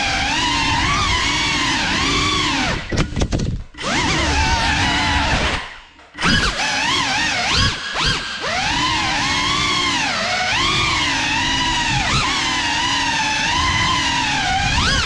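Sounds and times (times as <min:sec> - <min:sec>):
drone motors whining: 0:00.0 - 0:15.0.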